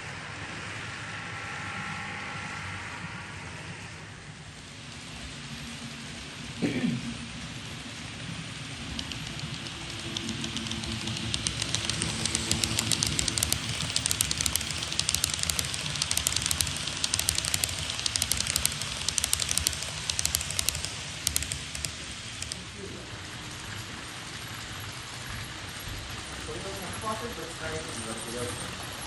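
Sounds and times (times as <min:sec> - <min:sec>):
faint motor hum: 0:01.2 - 0:29.0
model train wheels clattering: 0:08.7 - 0:24.4.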